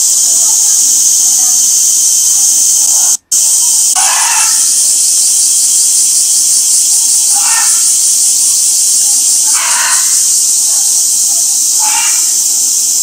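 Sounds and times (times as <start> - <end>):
cicadas droning: 0.0 - 13.0
short voice-like calls: 2.6 - 12.8.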